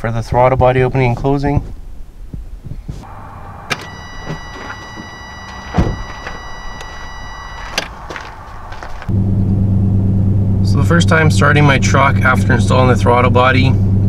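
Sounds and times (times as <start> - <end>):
high motor whine: 3.0 - 11.0.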